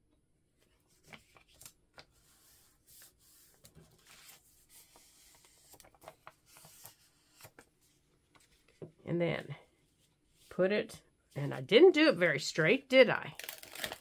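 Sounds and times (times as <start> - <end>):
paper rustling and tapping: 0.9 - 2.2.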